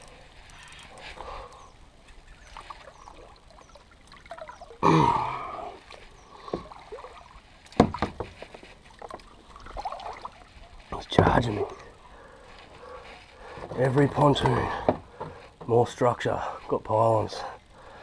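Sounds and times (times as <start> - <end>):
water trickling and sloshing: 0.0 - 15.8
person grunting: 4.8 - 5.8
sharp knocks: 7.8 - 8.4.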